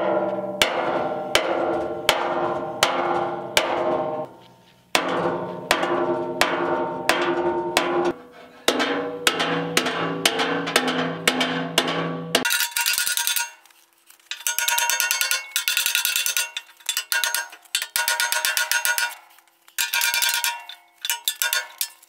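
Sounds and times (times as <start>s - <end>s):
hammer blows ringing on steel: 0.0s - 4.3s, 5.0s - 12.5s.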